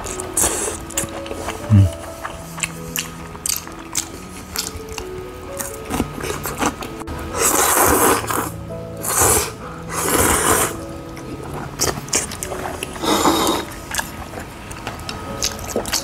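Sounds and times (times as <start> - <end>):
person slurping noodles: 0.0 - 2.4, 7.3 - 10.8, 13.0 - 13.9
background music: 0.0 - 16.0.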